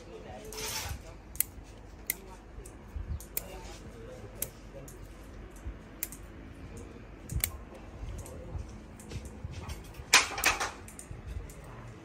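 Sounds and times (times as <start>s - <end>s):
pruning scissors snipping twigs: 4.3s - 7.6s.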